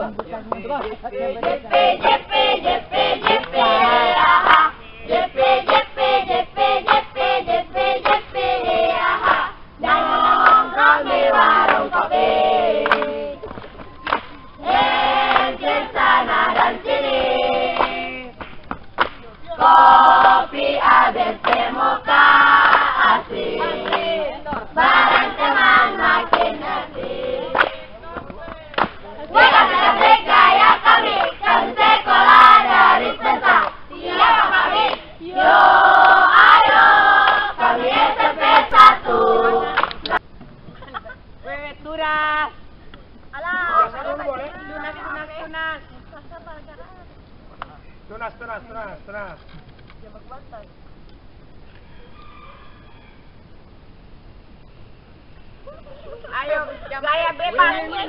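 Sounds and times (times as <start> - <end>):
group singing in chorus: 0.0 - 18.4, 19.5 - 40.3, 57.5 - 58.0
hand claps: 0.2 - 2.2, 3.2 - 3.6, 4.4 - 4.7, 5.6 - 5.9, 6.8 - 7.1, 8.0 - 8.2, 10.4 - 10.7, 11.6 - 11.9, 12.8 - 14.4, 15.2 - 15.6, 17.7 - 19.4, 21.4 - 21.7, 22.6 - 22.9, 23.8 - 29.4, 30.0 - 31.4, 33.6 - 33.8, 39.8 - 40.2.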